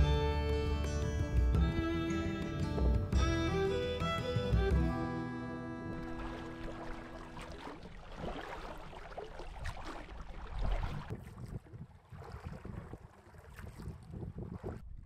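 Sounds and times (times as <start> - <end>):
oars splashing water: 5.8 - 15.0
wind on microphone: 10.5 - 15.0.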